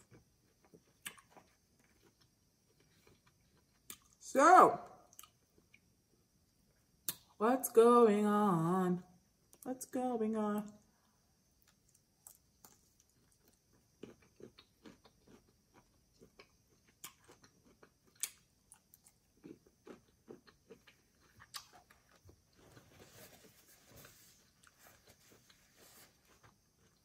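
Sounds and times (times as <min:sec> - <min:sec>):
person chewing: 0:00.0 - 0:04.2, 0:05.1 - 0:05.8, 0:11.6 - 0:22.8.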